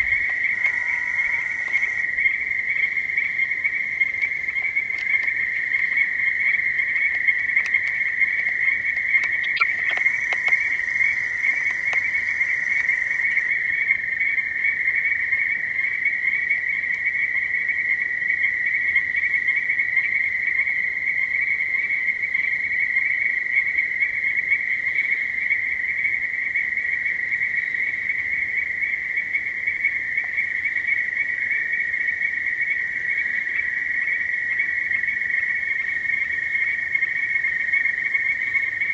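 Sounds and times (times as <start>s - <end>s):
chorus of frogs calling: 0.0s - 38.9s
faint clicks: 4.1s - 5.9s, 7.0s - 13.5s.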